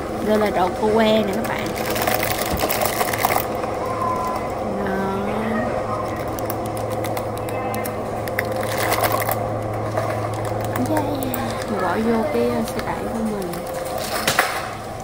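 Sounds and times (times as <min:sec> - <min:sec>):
steady low hum: 0:00.0 - 0:15.0
plastic bag crinkling: 0:01.4 - 0:03.6, 0:05.9 - 0:14.4.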